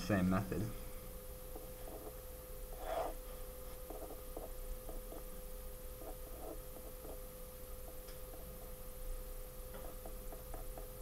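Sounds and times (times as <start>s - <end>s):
steady hum: 0.0s - 11.0s
handwriting scratches and taps: 1.5s - 2.2s, 2.8s - 5.3s, 6.0s - 7.2s, 9.8s - 11.0s.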